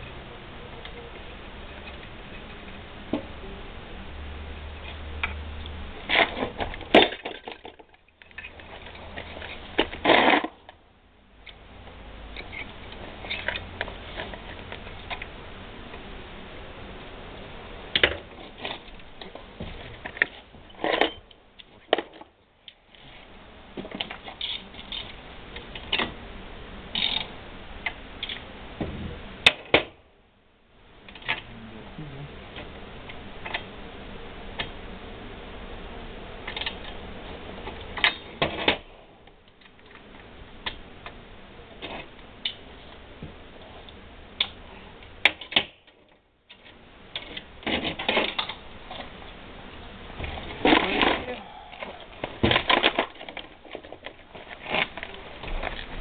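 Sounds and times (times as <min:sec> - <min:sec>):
hand tools and metal parts clicking: 0:26.9 - 0:27.3.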